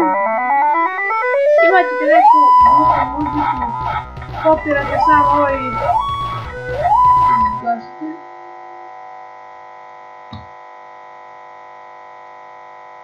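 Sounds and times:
chiptune music: 0:00.7 - 0:07.7
droning electronic chord: 0:01.0 - 0:12.9
click: 0:10.3 - 0:10.5.

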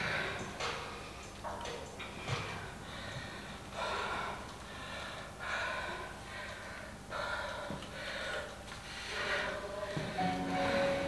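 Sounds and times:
woman breathing hard: 0:02.2 - 0:11.0.

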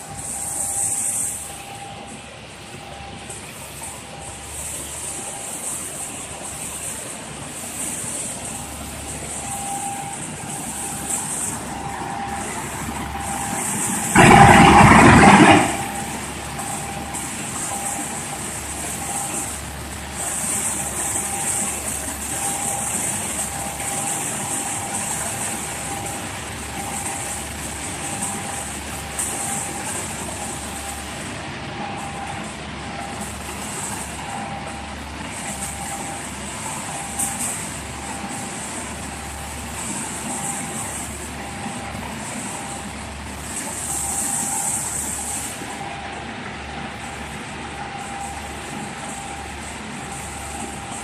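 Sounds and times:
hiss: 0:00.0 - 0:51.0
shot blasting machine running: 0:00.0 - 0:51.0
loud rushing noise: 0:09.4 - 0:19.3.

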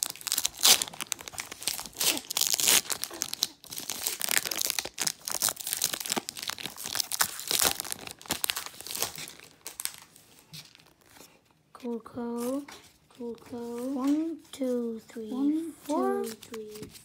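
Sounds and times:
plastic wrapper crinkling: 0:00.0 - 0:11.5.

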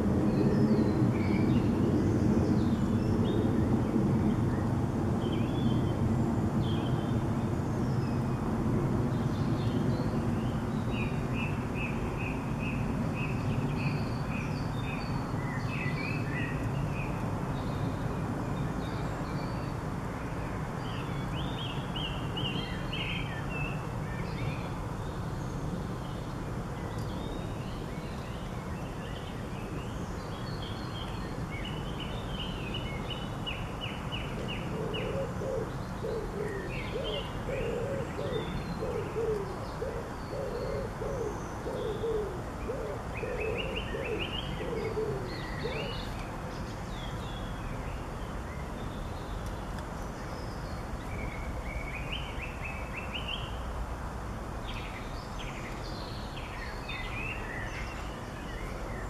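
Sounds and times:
pigeon cooing: 0:34.5 - 0:46.0.

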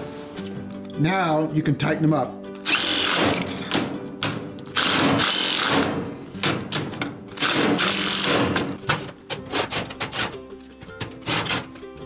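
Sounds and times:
cordless drill running: 0:02.6 - 0:03.3, 0:04.8 - 0:05.8, 0:07.4 - 0:08.4.

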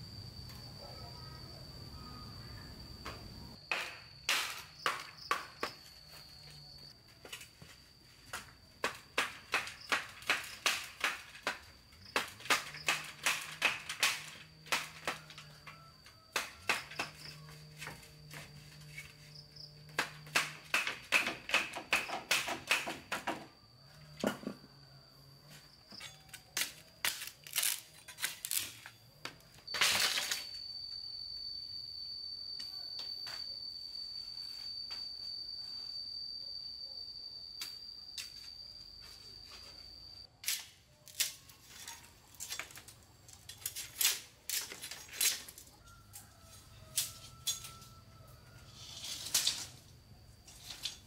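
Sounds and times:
steady high-pitched tone: 0:29.7 - 0:40.3.

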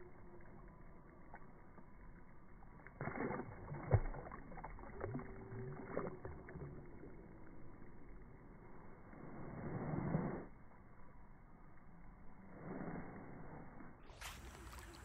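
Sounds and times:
fish splashing at water surface: 0:02.8 - 0:06.8.

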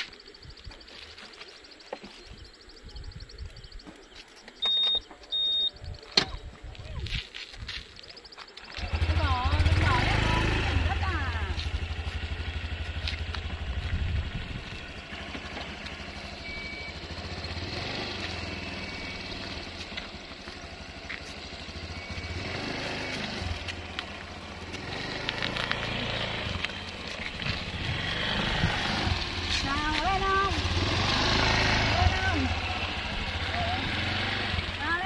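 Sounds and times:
motor scooter engine idling: 0:08.2 - 0:35.0.

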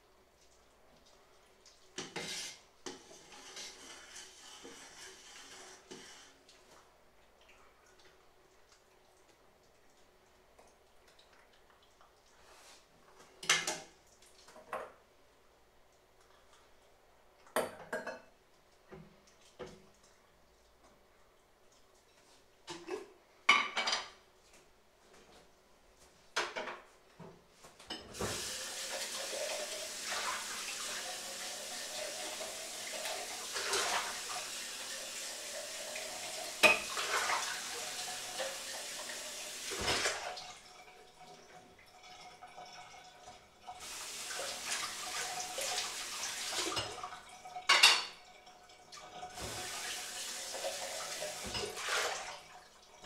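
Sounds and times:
dishes and pans clanking: 0:17.6 - 0:18.3, 0:22.7 - 0:24.2, 0:36.6 - 0:37.2, 0:47.7 - 0:48.2, 0:51.4 - 0:52.0
tap water running into sink: 0:27.9 - 0:53.0.

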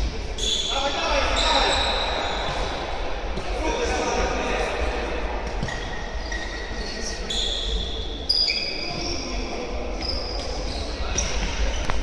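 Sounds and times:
shoes squeaking on floor: 0:00.3 - 0:02.8, 0:05.6 - 0:09.3, 0:09.9 - 0:12.0.

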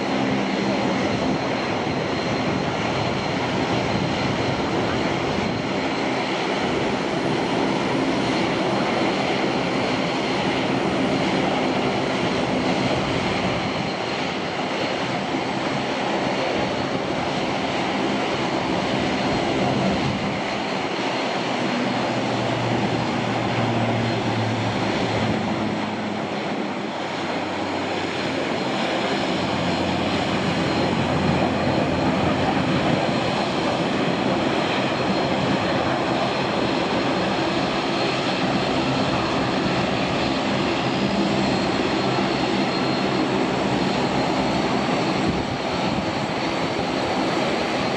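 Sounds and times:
jet airliner landing roar: 0:00.0 - 0:47.9
deeper engine hum: 0:16.4 - 0:47.8.

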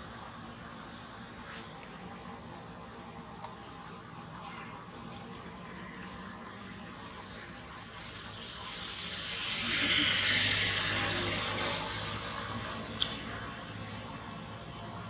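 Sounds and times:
vehicle passing by: 0:09.3 - 0:12.9.

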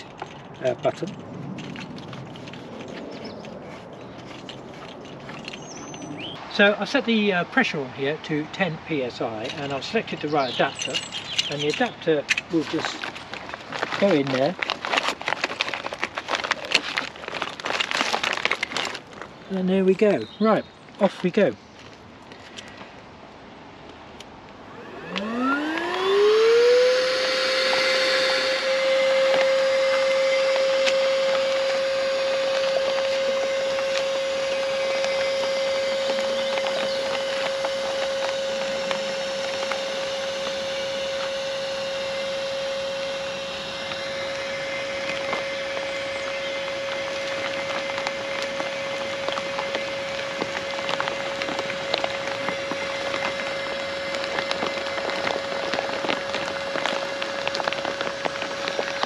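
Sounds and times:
electric inflator motor whine: 0:24.6 - 0:59.0
crackles and ticks: 0:29.3 - 0:41.3, 0:45.0 - 0:59.0.

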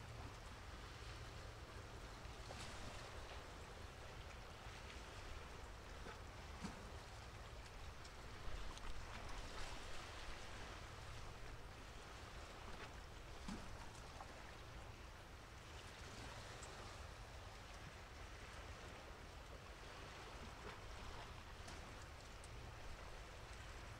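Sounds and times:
light rain ticks: 0:21.6 - 0:22.6.

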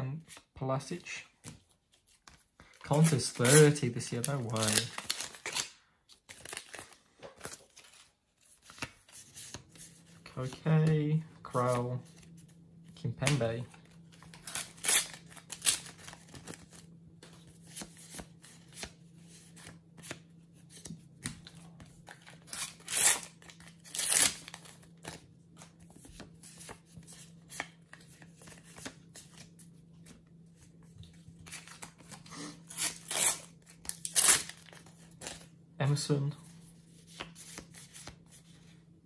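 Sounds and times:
sticker packets tearing open: 0:02.9 - 0:05.7, 0:22.2 - 0:25.2, 0:31.5 - 0:35.4.

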